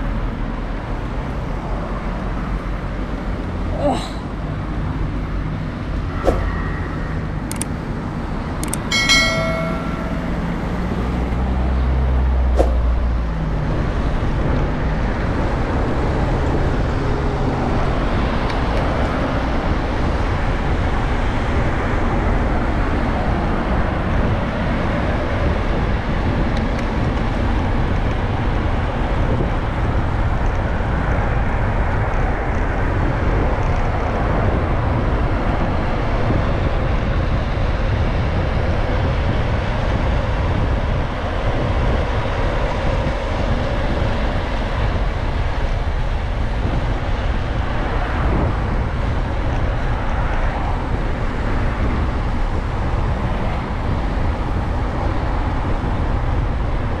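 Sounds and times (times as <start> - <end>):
passing car engines humming: 0.0 - 57.0
road and wind rush: 0.0 - 57.0
brief high pitched tone: 6.1 - 7.5, 8.9 - 11.3
sharp clicks: 7.4 - 7.8, 8.6 - 8.9.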